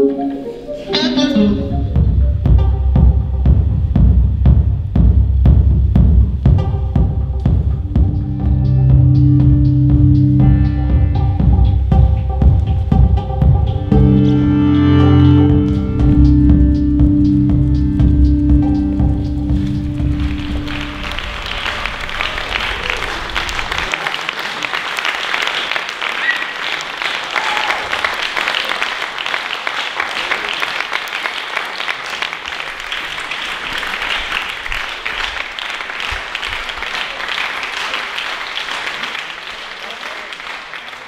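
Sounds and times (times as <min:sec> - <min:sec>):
low music note: 0:00.0 - 0:03.6, 0:06.6 - 0:12.5, 0:13.1 - 0:21.7
audience applauding: 0:18.9 - 0:41.0.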